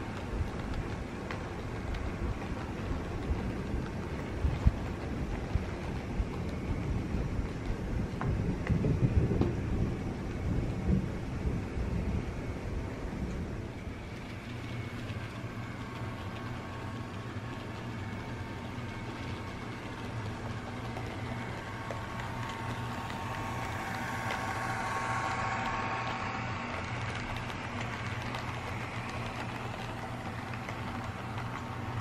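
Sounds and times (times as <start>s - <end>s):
model train running on track: 0.0s - 32.0s.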